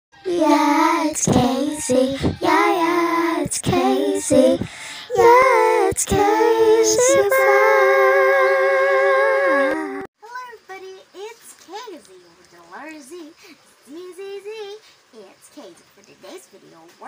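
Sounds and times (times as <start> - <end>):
high voice singing: 0.2 - 10.1
singer breathing: 2.0 - 2.4, 4.6 - 5.1.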